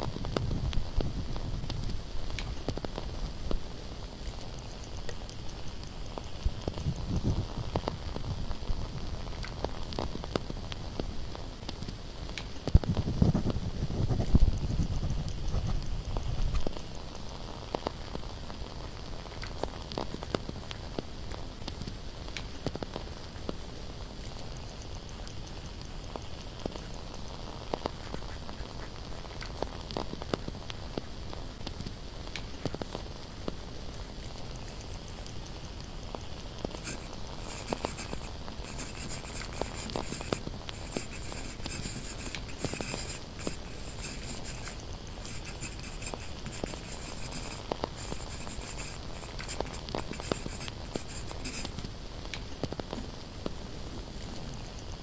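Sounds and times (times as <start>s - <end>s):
candle crackling: 0.0s - 55.0s
pen scratching on paper: 36.7s - 51.8s.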